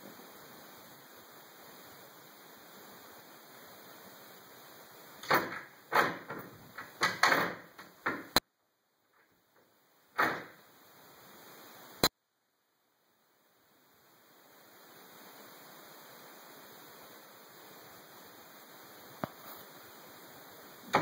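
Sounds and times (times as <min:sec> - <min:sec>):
wooden door rattling in frame: 0:05.2 - 0:08.4, 0:10.2 - 0:10.6.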